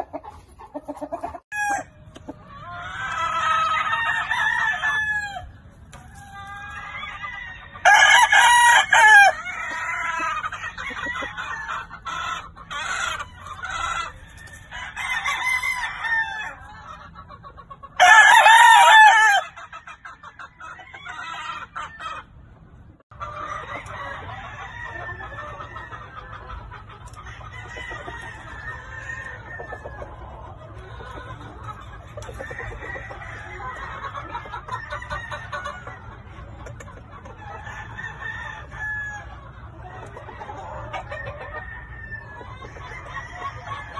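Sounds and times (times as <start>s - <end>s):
chickens clucking: 0.0s - 43.9s
rooster crowing: 1.5s - 1.9s, 3.0s - 5.5s, 6.8s - 11.7s, 18.0s - 19.5s, 37.7s - 39.3s.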